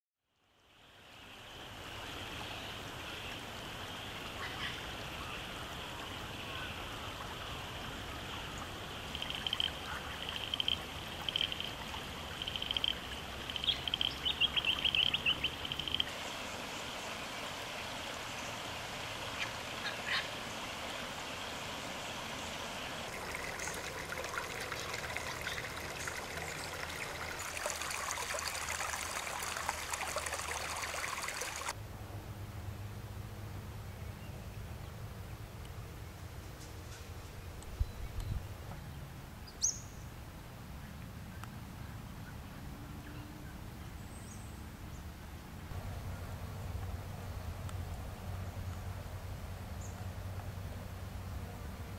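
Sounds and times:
flowing creek water: 0.4 - 31.8
high animal calls: 9.1 - 16.1.

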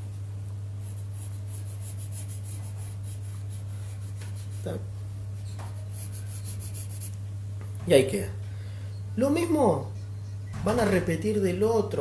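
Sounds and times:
steady low hum: 0.0 - 12.0
pencil scratching on paper: 0.8 - 4.8, 5.7 - 7.2.

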